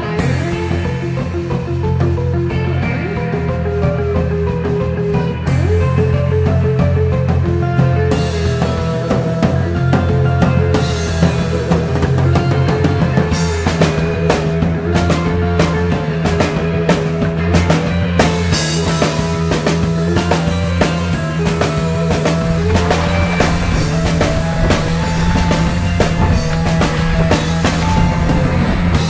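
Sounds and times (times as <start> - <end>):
band music: 0.0 - 29.0
bass line: 21.5 - 29.0.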